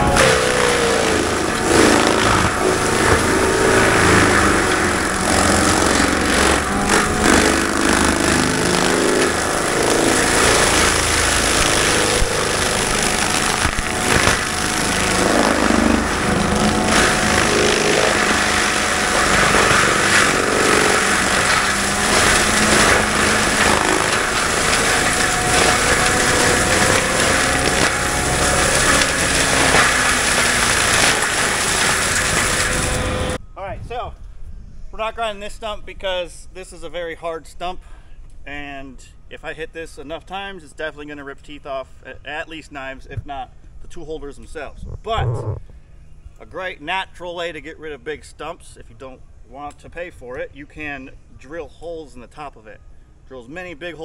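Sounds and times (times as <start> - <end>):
diesel engine running: 0.0 - 33.4
mulcher drum grinding: 0.0 - 33.4.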